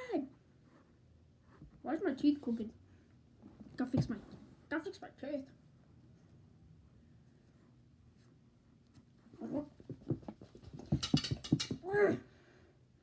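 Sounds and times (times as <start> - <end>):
child making silly noises: 11.8 - 12.3.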